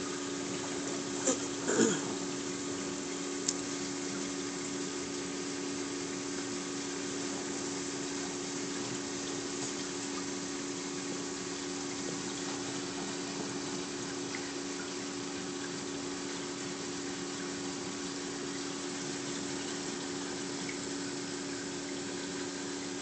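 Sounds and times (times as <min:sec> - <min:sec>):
aquarium pump hum: 0:00.0 - 0:23.0.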